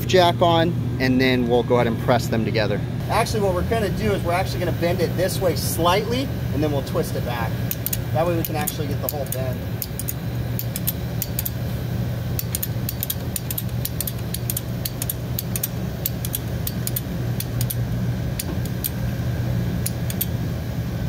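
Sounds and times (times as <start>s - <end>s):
low mechanical hum: 0.0s - 21.0s
short light clicks: 12.4s - 17.8s, 19.8s - 20.4s.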